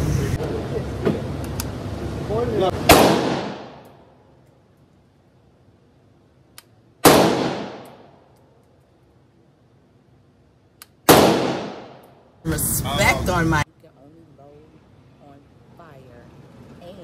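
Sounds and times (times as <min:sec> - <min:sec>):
pistol shots echoing indoors: 0:02.9 - 0:03.9, 0:07.0 - 0:08.1, 0:11.0 - 0:12.0.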